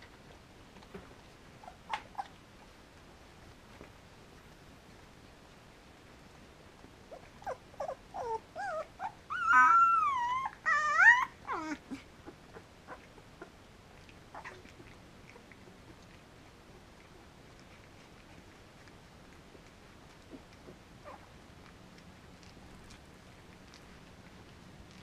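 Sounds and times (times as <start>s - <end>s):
puppy whining and squealing: 1.6s - 2.4s, 7.1s - 13.6s, 14.3s - 15.5s, 21.0s - 21.3s.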